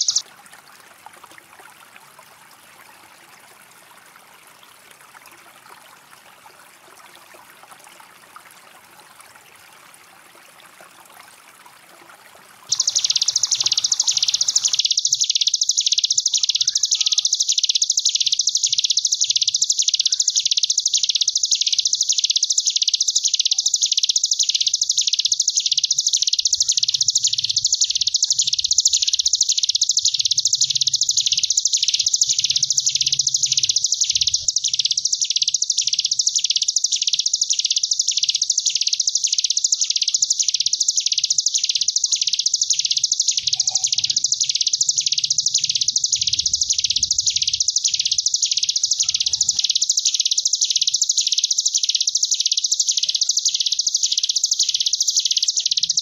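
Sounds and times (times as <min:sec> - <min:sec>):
bird buzzing trill: 0:00.0 - 0:00.2, 0:12.7 - 0:56.0.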